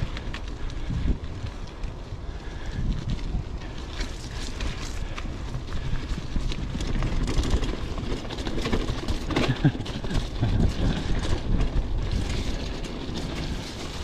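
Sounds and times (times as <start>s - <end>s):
bicycle rattling: 0.0s - 14.0s
tyres rumbling on dirt trail: 0.0s - 14.0s.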